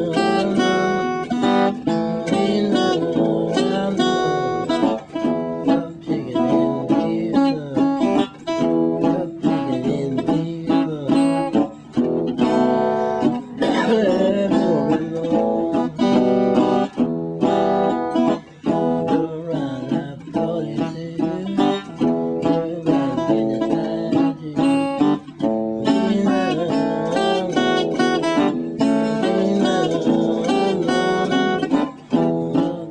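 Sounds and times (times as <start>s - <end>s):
fingerpicked resonator guitar: 0.0s - 32.9s.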